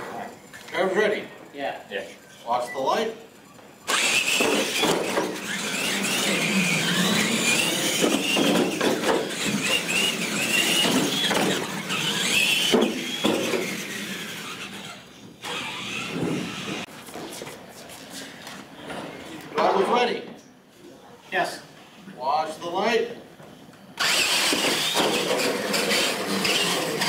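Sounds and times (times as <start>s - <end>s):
electric motors whining: 3.3s - 16.9s, 24.0s - 27.0s.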